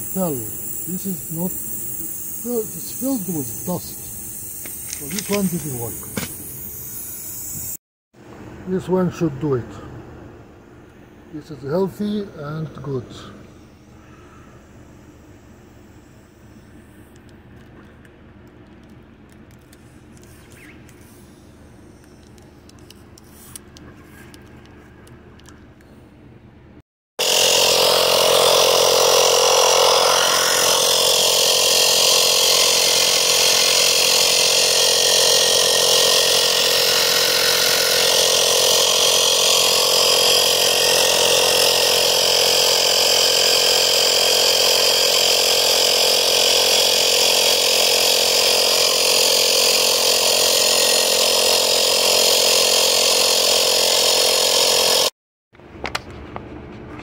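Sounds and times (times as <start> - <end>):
air compressor buzzing: 0.0 - 7.8, 10.6 - 17.3, 27.2 - 55.2.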